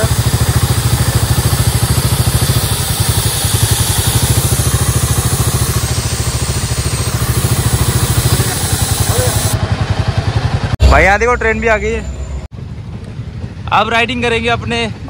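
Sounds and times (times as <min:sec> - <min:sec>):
single-cylinder engine idling: 0:00.0 - 0:12.0.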